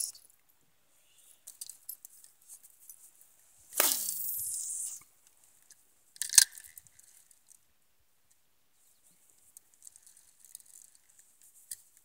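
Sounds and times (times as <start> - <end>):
line hissing off reel: 3.8 - 5.1.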